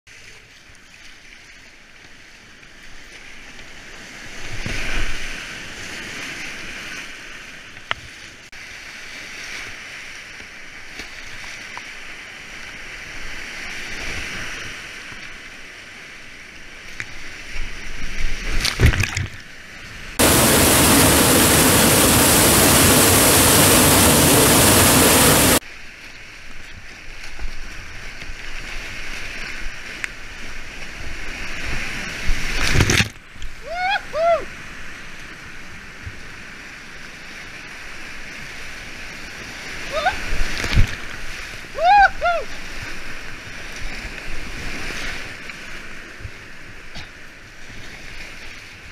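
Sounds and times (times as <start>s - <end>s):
paddle strokes and splashes: 0.1s - 24.5s, 25.2s - 48.9s
loud even rush of water: 19.9s - 25.9s, 27.7s - 46.0s
rushing whitewater: 20.1s - 26.0s.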